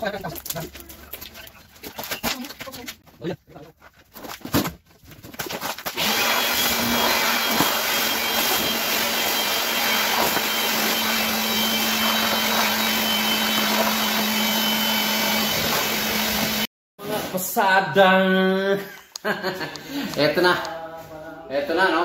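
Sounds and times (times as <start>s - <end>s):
electric power tool running: 6.0s - 16.7s.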